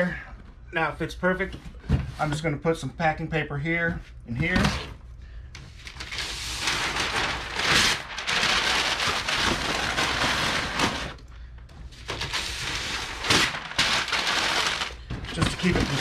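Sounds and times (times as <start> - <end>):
paper crumpling: 5.8 - 11.2, 12.0 - 16.0.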